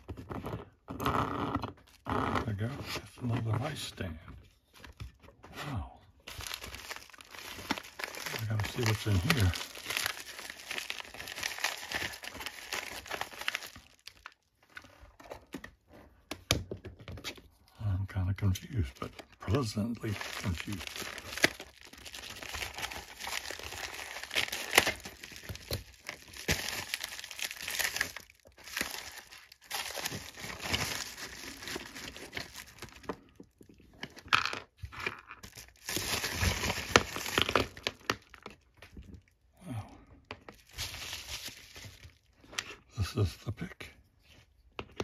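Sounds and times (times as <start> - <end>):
bubble mailer crinkling: 6.1 - 15.6, 18.5 - 39.4, 40.4 - 42.9.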